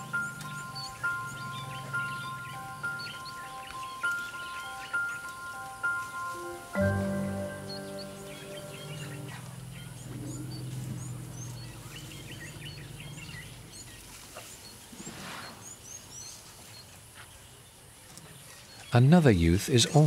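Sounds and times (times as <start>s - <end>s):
background music: 0.0s - 9.6s
small birds chirping: 0.0s - 20.0s
soft rustle: 9.0s - 18.8s.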